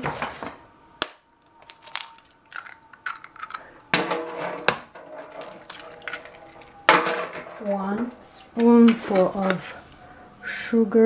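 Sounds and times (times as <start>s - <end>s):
eggs cracking on a metal bowl: 1.0s - 9.7s.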